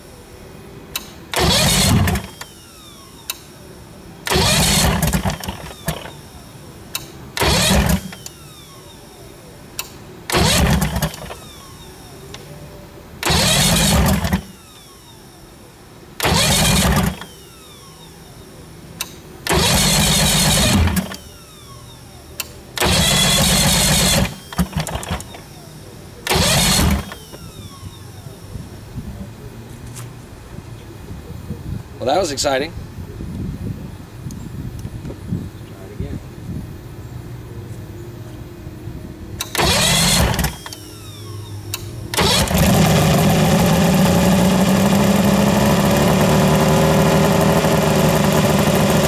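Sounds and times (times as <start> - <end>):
outboard engine cranking: 1.4 - 2.5, 4.3 - 6.2, 7.4 - 8.3, 10.3 - 11.4, 13.2 - 14.5, 16.2 - 17.3, 19.5 - 21.2, 22.8 - 25.5, 26.2 - 27.3, 39.5 - 40.8, 42.1 - 49.0.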